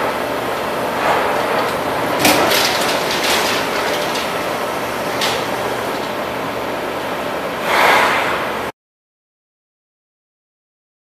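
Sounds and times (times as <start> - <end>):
punch machine whirring: 0.0 - 7.5.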